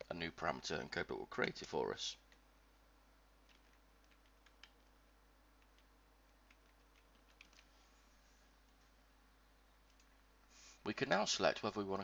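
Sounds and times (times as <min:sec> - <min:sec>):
keyboard typing: 0:03.4 - 0:05.0, 0:05.6 - 0:07.7, 0:09.8 - 0:10.2.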